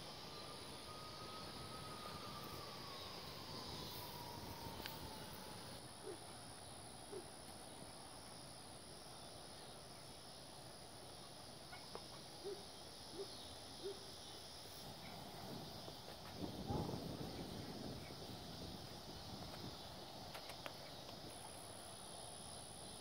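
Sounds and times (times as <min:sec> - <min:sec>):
thin high whine: 0:00.0 - 0:05.8
faint rural background: 0:00.0 - 0:23.0.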